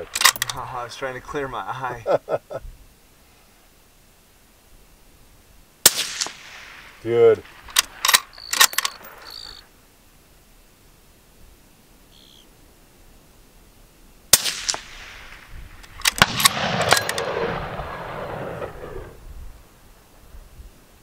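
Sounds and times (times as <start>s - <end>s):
rifle shot: 0.0s - 0.6s, 5.8s - 9.6s, 14.3s - 19.2s
sharp clicks and knocks: 0.0s - 0.6s, 7.6s - 9.4s.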